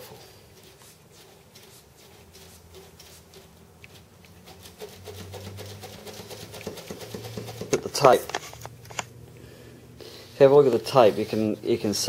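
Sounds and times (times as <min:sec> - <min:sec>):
tape scratching and crackling: 0:00.6 - 0:09.2.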